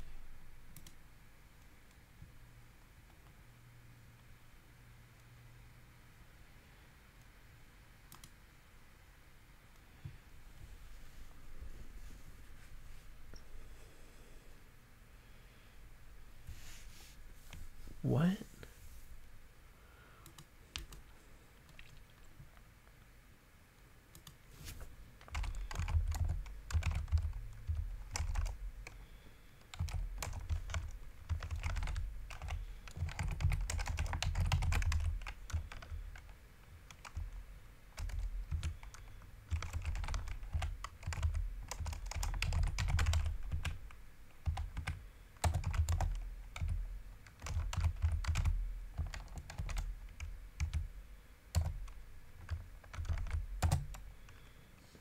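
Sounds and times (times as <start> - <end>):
keyboard typing: 0.7 - 1.0, 8.1 - 8.4, 20.2 - 22.5, 24.1 - 24.4, 25.2 - 37.4, 38.0 - 50.9, 51.5 - 54.5.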